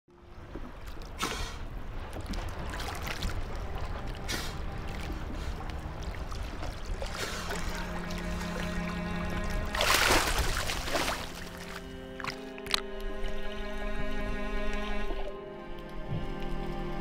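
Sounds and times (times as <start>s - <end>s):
sea water sloshing and rushing: 0.1s - 17.0s
water splashing or bubbling: 0.3s - 13.0s
low musical drone: 2.0s - 17.0s.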